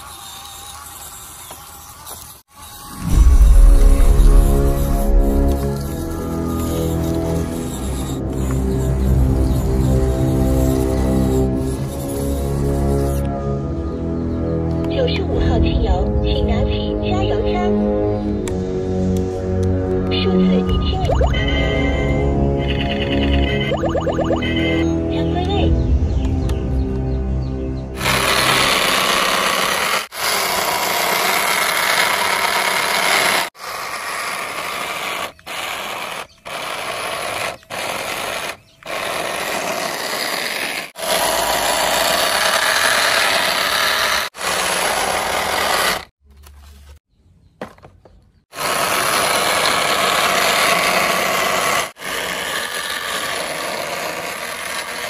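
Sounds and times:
small electric motor buzzing: 0.0 - 13.6, 28.0 - 46.2, 48.5 - 55.0.

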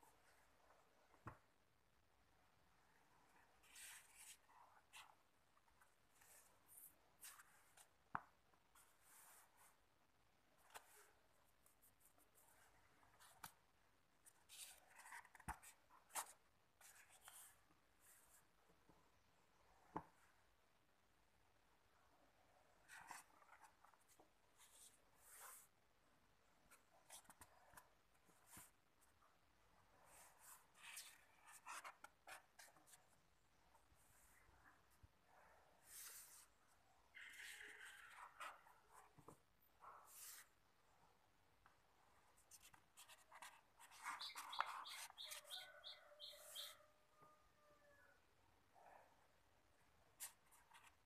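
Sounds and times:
book pages rustling: 3.5 - 9.8, 10.6 - 13.6, 14.2 - 18.4, 22.8 - 25.7, 30.0 - 34.4, 37.2 - 40.5, 42.4 - 45.8
bird chirping: 44.0 - 46.9.

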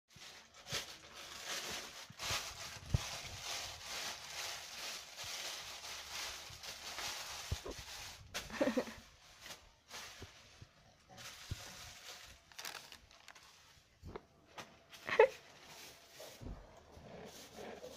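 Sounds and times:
plastic bag crinkling: 0.1 - 14.0.

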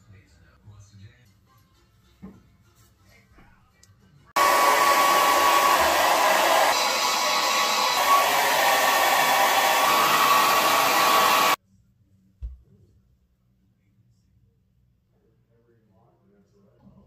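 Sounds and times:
hair dryer blowing: 4.4 - 11.6.

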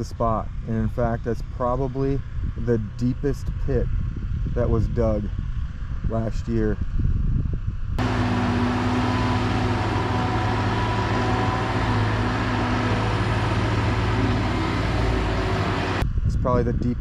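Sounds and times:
excavator diesel engine running: 8.0 - 16.0.

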